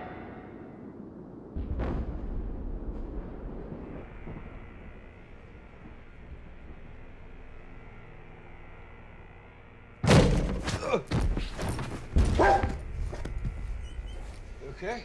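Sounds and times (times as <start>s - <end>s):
dog barking: 12.3s - 12.8s.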